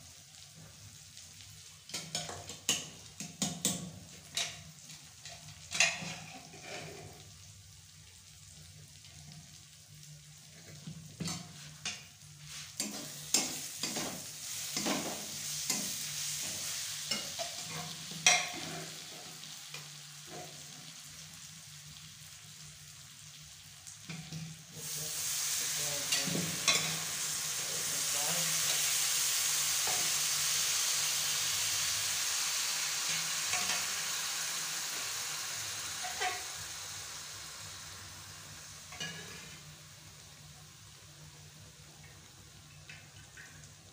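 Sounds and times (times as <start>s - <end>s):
food sizzling in hot pan: 0.0s - 43.9s
metal ladle scraping a pan: 5.8s - 7.2s, 36.0s - 36.5s
metal clinking on pan: 17.1s - 18.6s, 36.0s - 36.4s.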